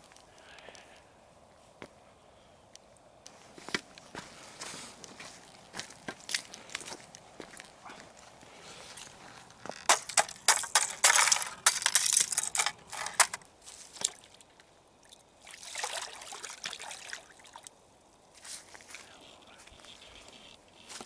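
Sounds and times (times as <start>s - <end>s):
brook trickling over rocks: 11.6s - 18.3s.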